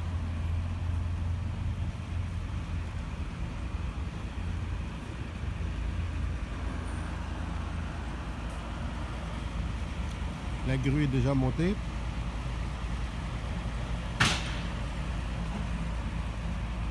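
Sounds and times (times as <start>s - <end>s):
diesel engine idling: 0.0s - 16.9s
road traffic: 0.0s - 16.9s.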